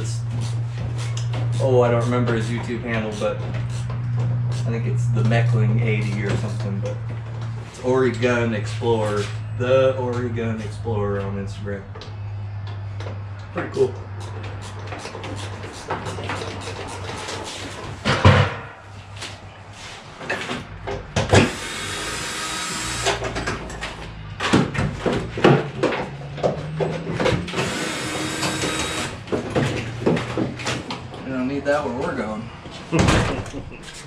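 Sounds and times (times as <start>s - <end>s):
steady low hum: 0.0s - 26.3s
cordless drill running: 21.4s - 23.2s, 27.6s - 29.2s.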